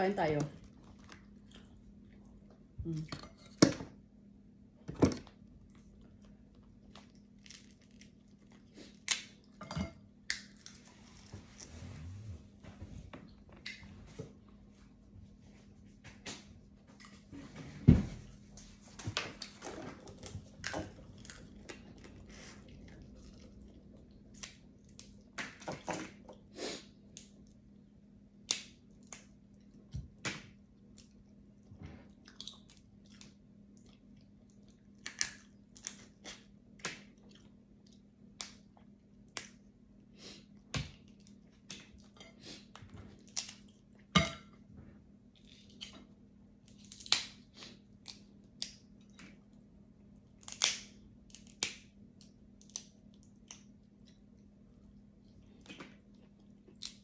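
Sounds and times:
faint steady hum: 0.0s - 57.0s
chewing: 0.6s - 2.6s, 19.4s - 25.3s
crab shell cracking: 50.4s - 53.8s.

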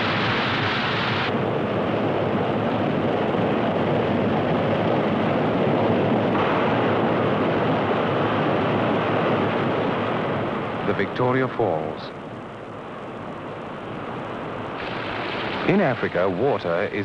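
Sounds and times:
white water roaring over rocks: 0.0s - 1.4s.

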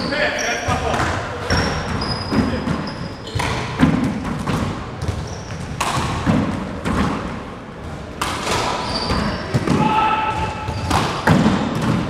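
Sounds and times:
sneaker squeaks on wooden floor: 0.0s - 3.8s, 5.0s - 5.8s, 8.5s - 11.3s.

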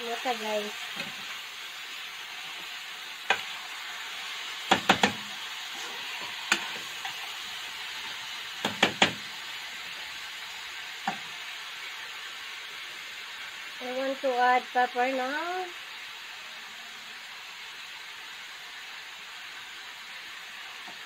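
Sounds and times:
chicken sizzling in frying pan: 0.0s - 21.0s
spoon knocking against pan: 4.7s - 5.2s, 8.6s - 9.2s.

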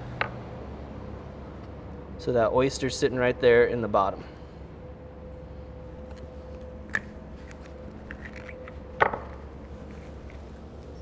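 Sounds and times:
steady hum: 0.0s - 11.0s
knife scraping oyster shell: 6.9s - 8.8s.

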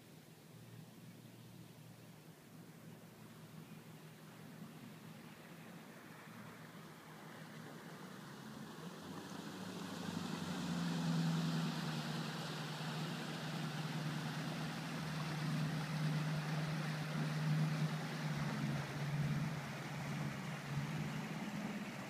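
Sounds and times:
motorboat engine passing: 0.6s - 22.0s
water hiss: 6.0s - 22.0s.

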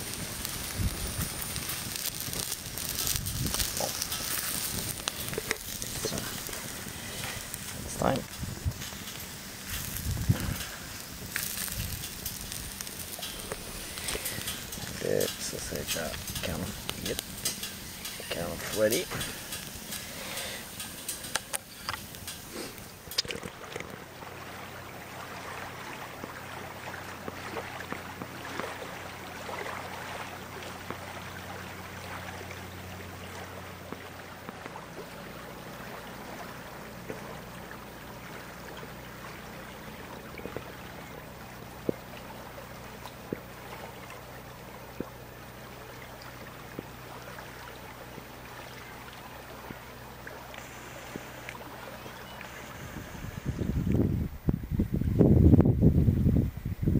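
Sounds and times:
water lapping on shore: 0.0s - 54.8s
low steady hum: 0.0s - 56.9s.

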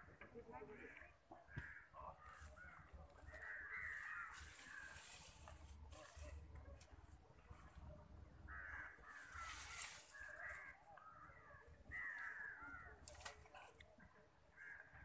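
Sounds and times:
crows cawing: 0.8s - 5.5s, 8.5s - 13.4s, 14.5s - 15.0s.

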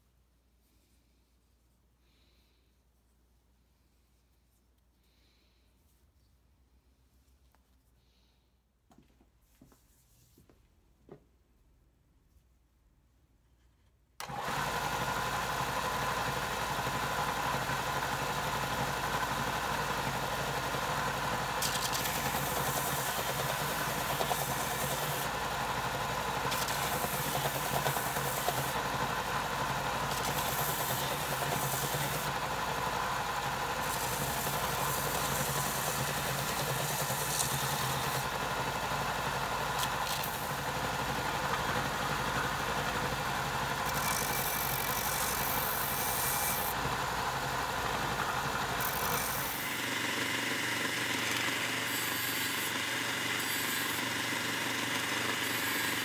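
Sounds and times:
sander motor hum: 14.2s - 56.0s
sanding hiss on wood: 22.0s - 25.3s, 26.4s - 28.8s, 29.8s - 32.3s, 33.8s - 38.2s.

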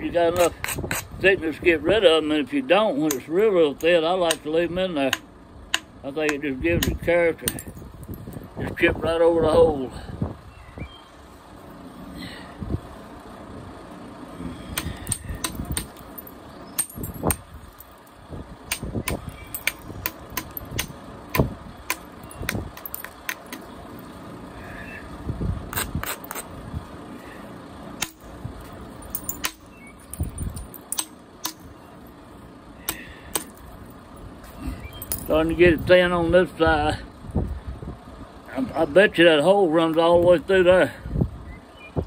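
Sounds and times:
billet striking flint: 5.1s - 7.7s, 14.7s - 17.8s, 18.6s - 23.7s, 28.0s - 28.3s, 29.1s - 31.7s, 32.8s - 33.7s.

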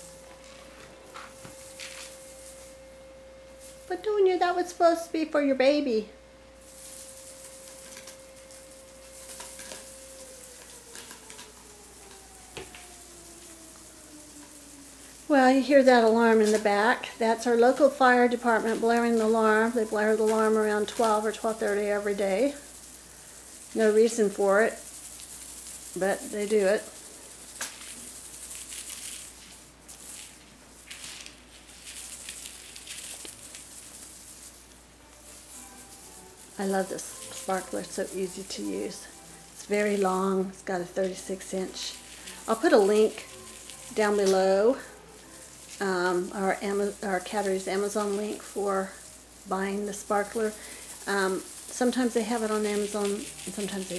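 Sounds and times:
kitten paws scuffling: 0.0s - 2.9s, 6.7s - 53.9s
wand toy crinkling and rustling: 0.0s - 5.4s, 6.5s - 53.9s
fire siren winding down: 0.0s - 20.6s.

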